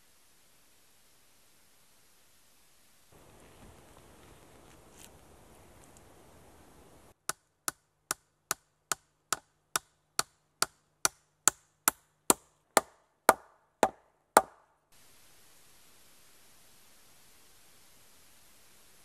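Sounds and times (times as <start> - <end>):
hammer driving a nail: 7.3 - 14.6.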